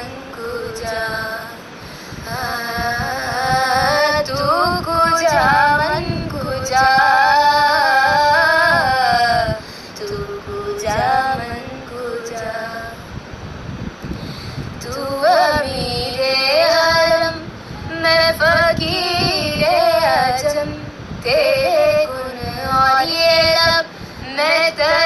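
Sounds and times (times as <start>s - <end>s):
person singing: 2.3s - 13.1s, 14.8s - 25.0s.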